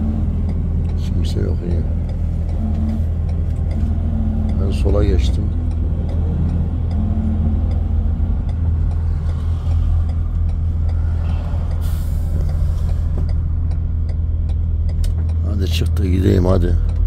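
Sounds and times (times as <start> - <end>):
diesel truck engine running: 0.0 - 17.0
faint ticking: 0.0 - 17.0
brake air hiss: 10.8 - 13.3.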